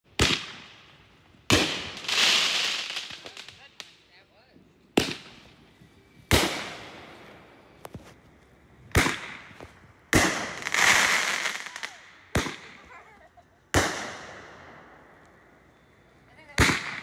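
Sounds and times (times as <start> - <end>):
firework bangs: 0.1 - 4.0, 4.9 - 8.0, 8.8 - 15.9, 16.5 - 17.0
firework hissing crackle: 0.2 - 4.2, 5.0 - 13.2.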